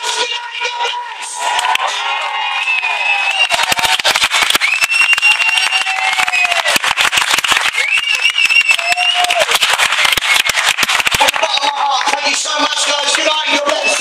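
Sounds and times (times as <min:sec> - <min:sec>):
audience applauding: 0:01.4 - 0:14.0
high held whistle tone: 0:04.6 - 0:06.6, 0:07.8 - 0:09.4.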